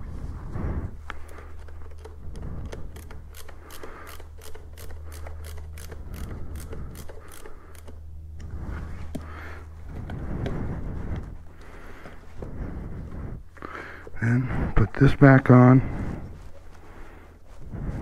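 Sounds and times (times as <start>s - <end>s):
screwdriver clicking: 1.1s - 8.5s.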